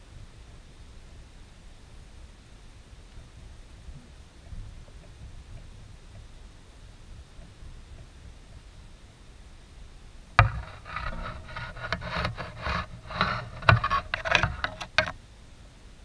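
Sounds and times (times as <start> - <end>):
rubbing scraping and knocking: 10.4 - 15.2.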